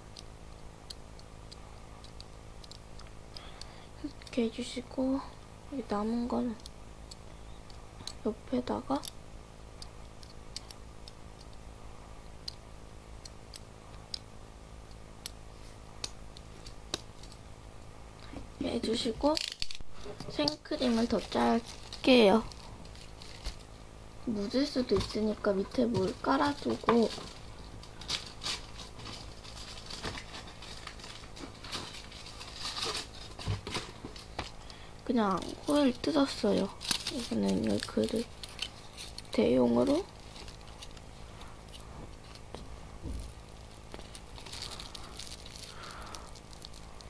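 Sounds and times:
low steady hum: 0.0s - 47.0s
faint small clicks and ticks: 0.1s - 4.4s, 9.8s - 11.6s
aluminium foil crinkling: 18.2s - 47.0s.

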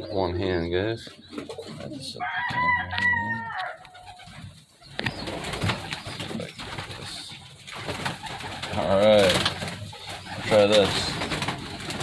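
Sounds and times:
young pigeon squeaking: 0.0s - 7.2s.

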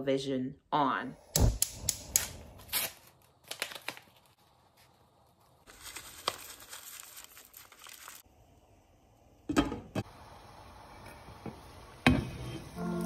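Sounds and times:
paper pouch crinkling: 2.6s - 8.2s
faint steady hiss: 8.2s - 13.0s.

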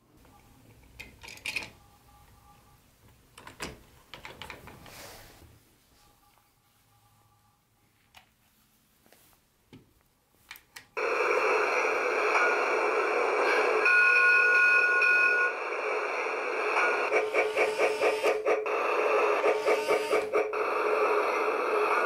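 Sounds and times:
toy electronic sound effect: 16.9s - 22.0s.

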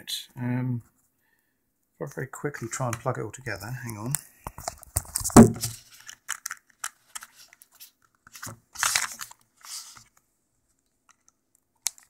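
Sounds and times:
cables and plugs handling rustles: 2.7s - 12.0s.

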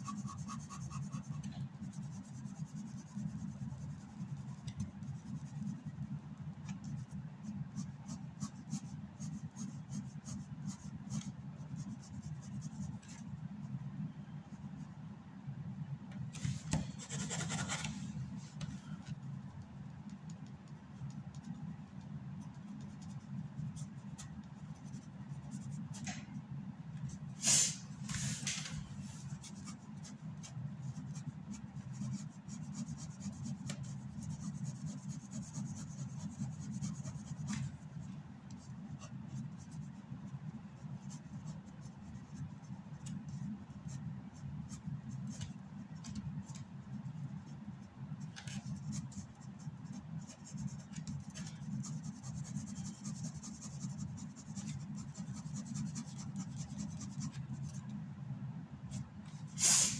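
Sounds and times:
pen scratching on paper: 0.0s - 5.9s, 16.7s - 18.0s, 29.3s - 37.8s, 48.4s - 57.8s.

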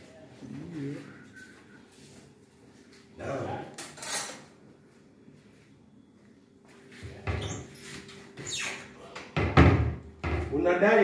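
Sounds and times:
cupboard door knocks and clatters: 9.4s - 10.5s.

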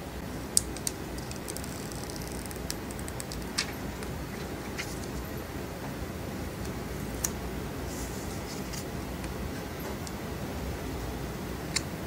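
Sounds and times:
low background noise: 0.0s - 12.0s
plastic film clicks and crackles: 0.6s - 4.1s.

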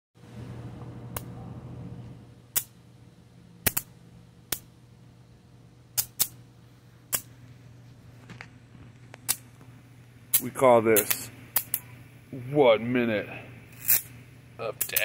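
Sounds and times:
steady low hum: 0.2s - 15.0s
bug zapper zaps: 3.6s - 4.7s, 6.0s - 6.4s, 10.3s - 12.0s, 13.7s - 14.2s, 14.8s - 15.0s.

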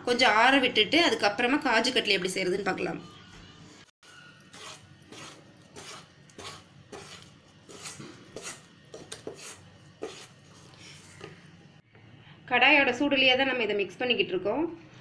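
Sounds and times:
wooden spatula scraping a pan: 4.4s - 11.4s.

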